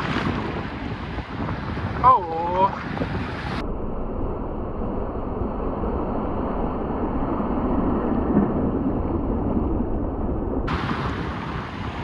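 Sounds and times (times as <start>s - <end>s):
waves washing around a boat: 0.0s - 3.6s, 10.7s - 12.0s
wind buffeting microphone: 0.0s - 12.0s.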